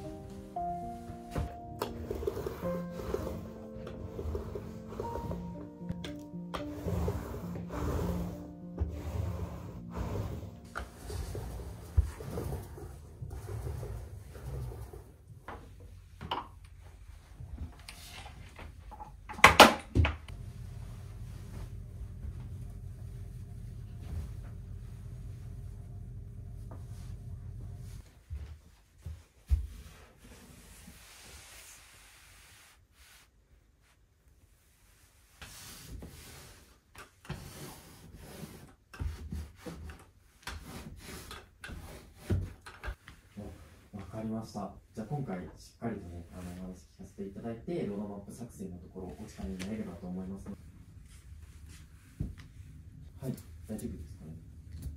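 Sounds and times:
quilted futon rustling: 0.0 - 16.2, 26.5 - 44.4, 49.0 - 53.3.

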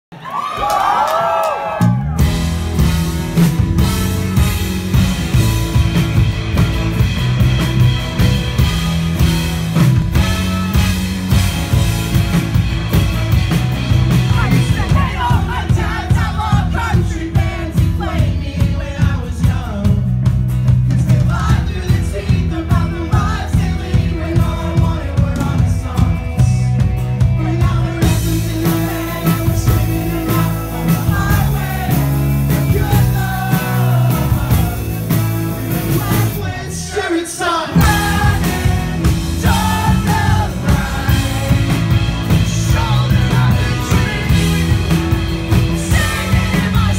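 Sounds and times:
live rock band playing: 1.6 - 46.9
man singing: 14.3 - 46.9.

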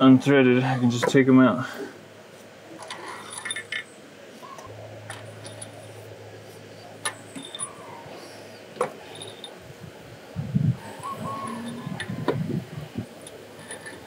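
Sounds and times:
low steady hum: 0.0 - 14.0
metal bolts clinking: 2.8 - 3.9, 5.0 - 6.0, 7.0 - 8.0, 8.8 - 9.6.

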